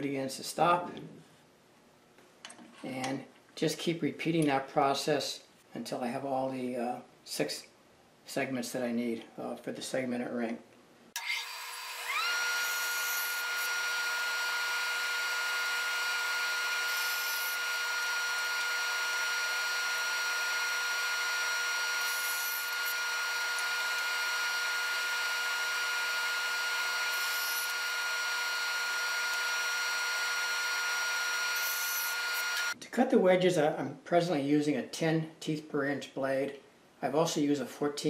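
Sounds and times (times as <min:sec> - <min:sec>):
bandsaw whine: 0:11.2 - 0:32.8
saw blade cutting wood: 0:11.2 - 0:32.8.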